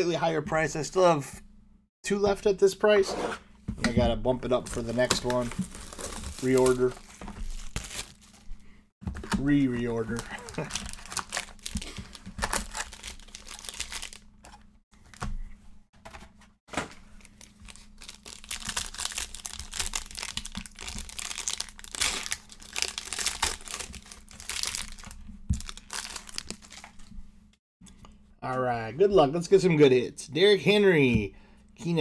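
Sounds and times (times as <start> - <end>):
foil wrappers tearing and crinkling: 4.7 - 8.5, 9.4 - 14.6, 17.2 - 27.1.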